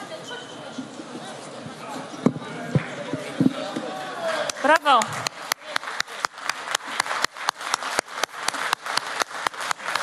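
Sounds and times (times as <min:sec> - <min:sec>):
crowd noise: 0:00.0 - 0:10.0
audience clapping in unison: 0:04.2 - 0:10.0.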